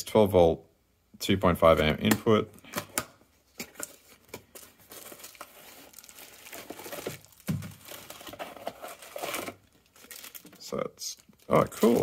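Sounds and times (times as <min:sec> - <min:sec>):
packing wrap rustling and crackling: 0:03.6 - 0:12.0.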